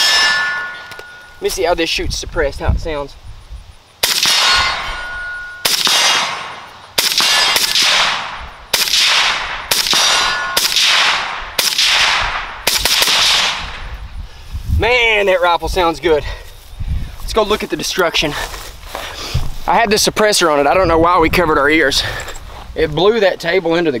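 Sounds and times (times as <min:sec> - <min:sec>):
steel target ringing: 0:00.0 - 0:01.5, 0:04.2 - 0:07.8, 0:09.7 - 0:11.4
suppressed rifle shots with echo: 0:04.0 - 0:13.8.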